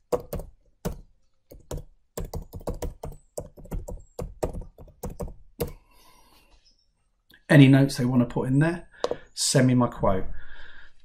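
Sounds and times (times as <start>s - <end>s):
typing on keyboard: 0.0s - 5.8s.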